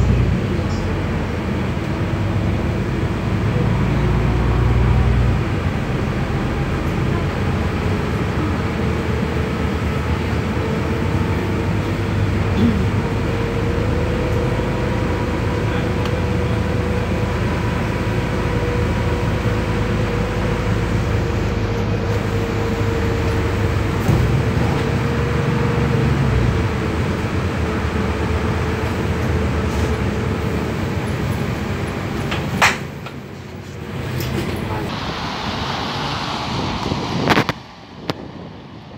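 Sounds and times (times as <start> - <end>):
bus drivetrain rumble and whine: 0.0 - 38.9
tyre hiss on wet road: 34.9 - 38.0.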